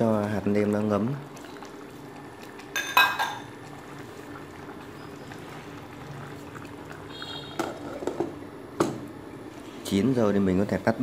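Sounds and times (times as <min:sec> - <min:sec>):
pot bubbling at a simmer: 0:00.0 - 0:11.0
glass lid clinking on pot: 0:02.8 - 0:03.5.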